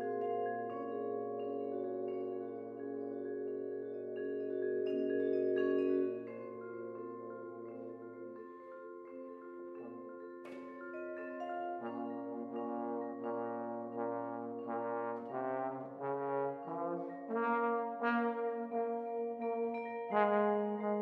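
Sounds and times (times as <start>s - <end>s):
mallet percussion ringing notes: 0.0s - 21.0s.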